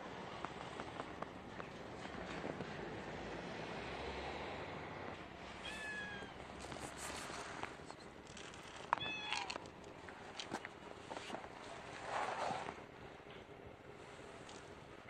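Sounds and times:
cat meowing: 5.6s - 6.4s, 9.0s - 9.6s.

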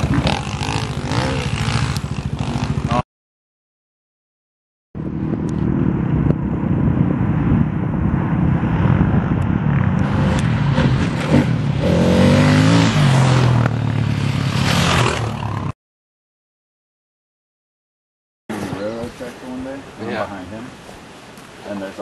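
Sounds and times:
dirt bike engines climbing: 0.0s - 3.0s, 9.4s - 15.7s
dirt bike revving past: 0.0s - 3.0s, 8.7s - 15.7s.

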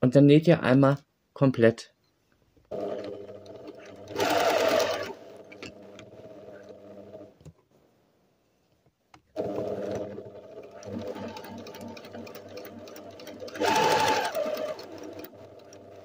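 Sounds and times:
sewing machine stitching: 2.7s - 7.3s, 9.4s - 16.0s.

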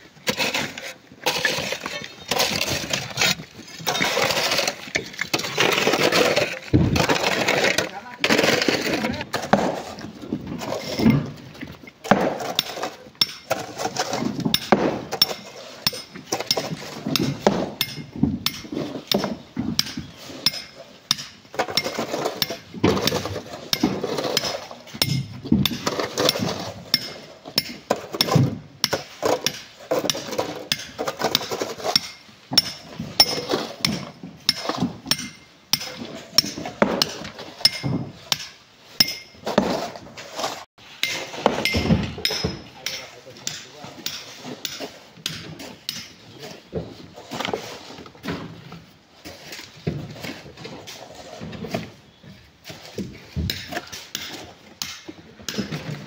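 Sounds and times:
metal tool striking rock: 12.1s - 13.6s, 14.5s - 39.4s, 41.0s - 46.1s, 53.5s - 55.7s.

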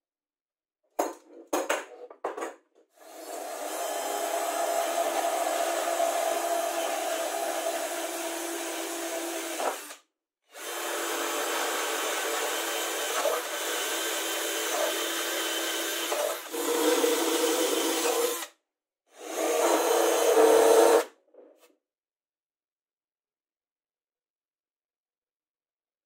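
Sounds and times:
cordless drill boring wood: 3.0s - 21.1s.

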